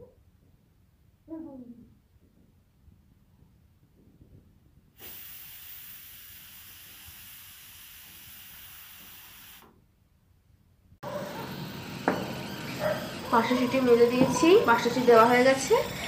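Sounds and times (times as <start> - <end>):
pressure cooker steam hissing: 5.0 - 9.7, 11.2 - 16.0.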